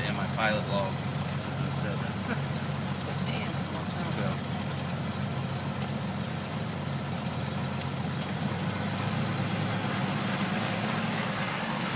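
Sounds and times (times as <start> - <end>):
propeller plane engine drone: 0.0 - 11.9.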